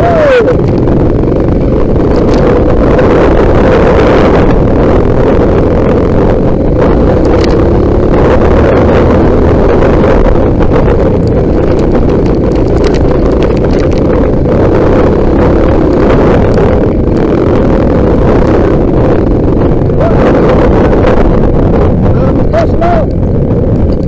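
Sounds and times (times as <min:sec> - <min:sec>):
motorcycle engine running: 0:00.0 - 0:24.0
wind buffeting microphone: 0:00.0 - 0:24.0
knocks and rattles: 0:10.3 - 0:14.6.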